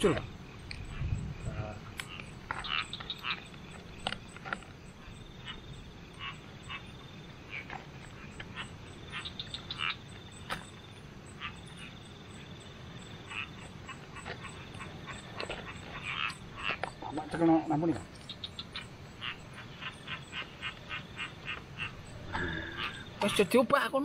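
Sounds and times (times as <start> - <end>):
frogs croaking and trilling: 0.0 - 24.0.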